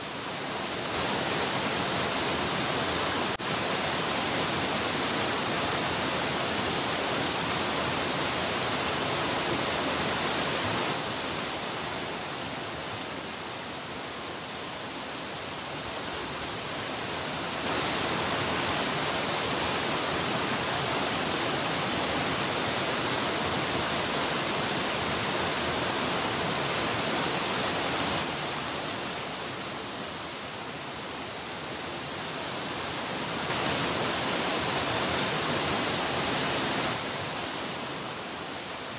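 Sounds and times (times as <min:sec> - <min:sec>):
river rapids rushing: 0:00.0 - 0:38.9.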